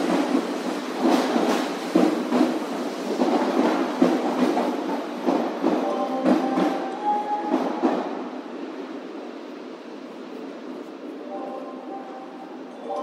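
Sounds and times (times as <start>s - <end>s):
train wheels knocking over rail joints: 0.0s - 6.8s.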